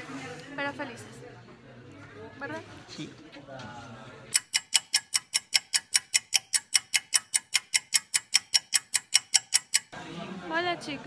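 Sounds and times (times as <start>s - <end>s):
fast clock ticking: 4.3s - 10.0s.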